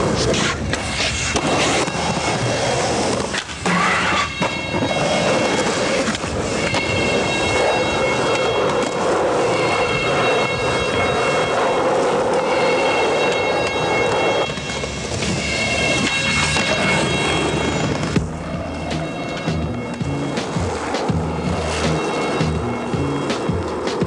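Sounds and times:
skateboard clacks: 0.0s - 24.0s
skateboard wheels rolling on pavement: 0.0s - 24.0s.

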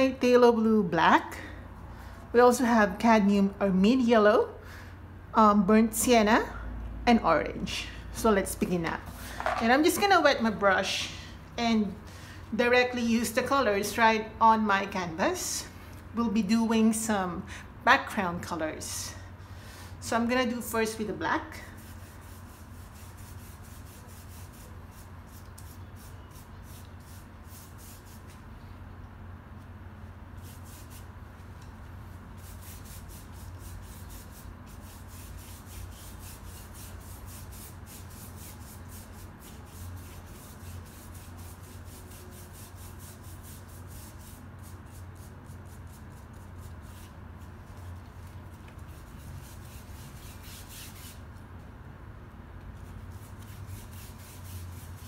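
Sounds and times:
paintbrush scrubbing on paper: 21.6s - 28.4s, 30.4s - 51.4s, 52.8s - 55.0s.

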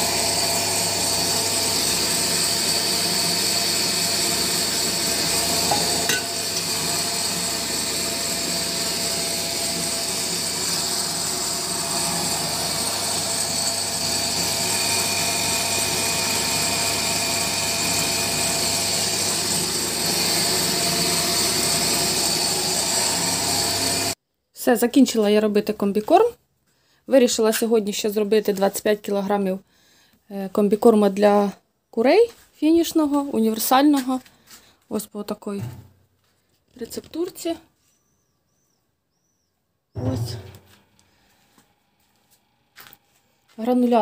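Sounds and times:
pellet mill motor hum: 0.0s - 24.2s, 40.0s - 44.0s.

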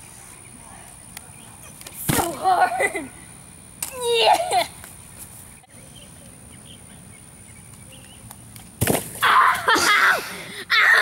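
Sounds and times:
thud of landing on grass: 2.0s - 2.4s, 8.8s - 9.2s
girl yelling: 3.9s - 4.7s, 9.2s - 11.0s.

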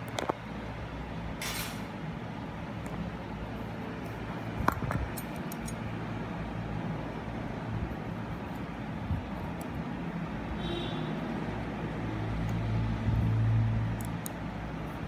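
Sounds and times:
steady background hum: 0.0s - 15.0s
metal instruments clinking: 4.9s - 6.0s.

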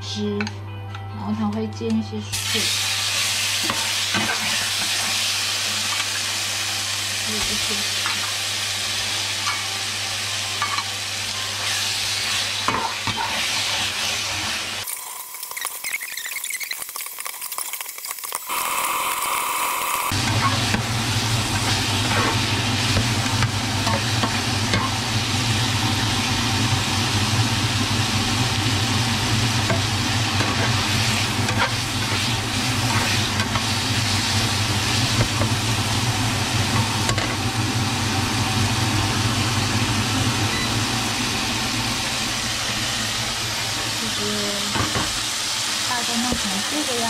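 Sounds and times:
chicken sizzling in a frying pan: 2.3s - 47.0s.

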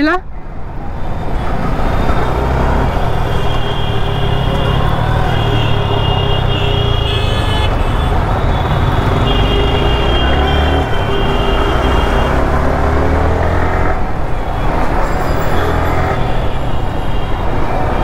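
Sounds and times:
vehicle horns: 1.2s - 12.8s.

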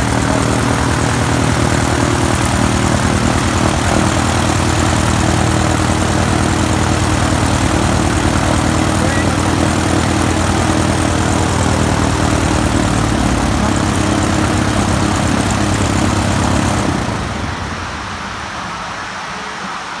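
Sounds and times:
aircraft engine and propeller: 0.0s - 19.6s
steady hiss: 17.4s - 20.0s.

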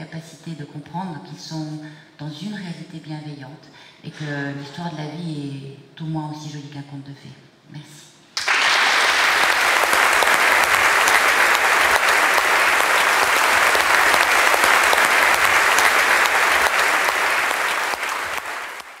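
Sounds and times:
audience applauding: 8.4s - 19.0s.

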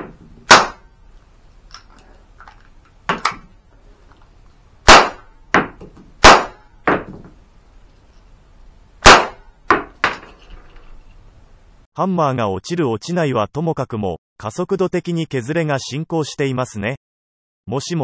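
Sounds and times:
cap pistol bangs: 0.0s - 0.8s, 4.9s - 7.1s, 9.0s - 9.9s.

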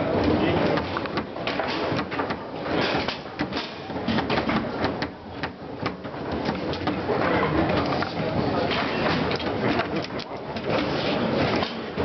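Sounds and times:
background hubbub: 0.0s - 12.0s
foosball ball clicks and knocks: 0.7s - 10.9s.

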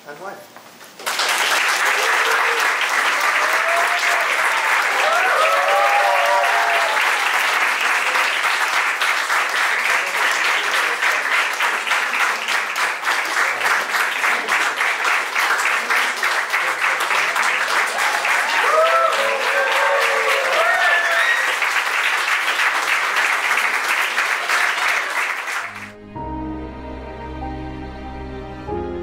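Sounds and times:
guests clapping: 0.9s - 26.0s.

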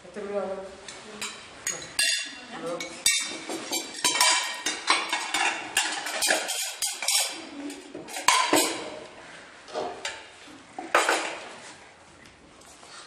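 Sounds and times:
plates and spoons clinking: 1.2s - 9.1s, 9.7s - 11.5s.

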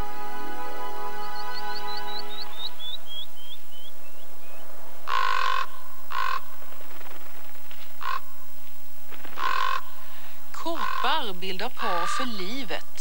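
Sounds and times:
raven calling harshly: 5.0s - 6.6s, 7.9s - 8.5s, 9.2s - 12.9s.

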